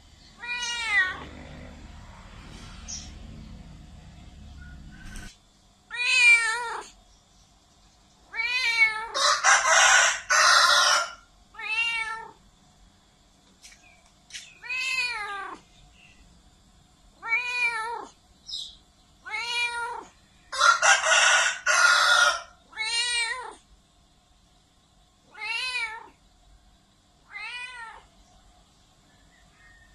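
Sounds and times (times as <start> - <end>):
cat meowing loudly: 0.4 - 1.4, 5.9 - 7.0, 8.3 - 9.2, 11.5 - 12.4, 14.6 - 15.7, 17.2 - 18.2, 19.2 - 20.2, 22.1 - 23.6, 25.3 - 26.2, 27.2 - 28.1.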